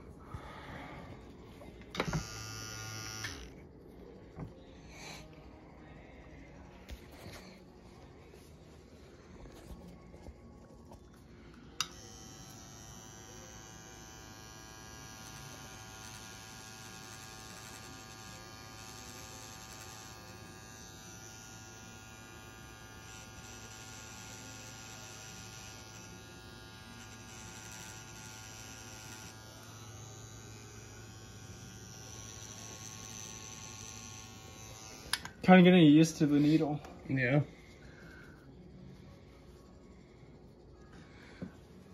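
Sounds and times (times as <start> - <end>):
tattoo machine buzzing: 1.1 - 5.7, 10.3 - 37.0, 37.7 - 40.1
tattoo machine switch click: 1.9 - 3.5, 11.8 - 12.1, 35.0 - 35.4.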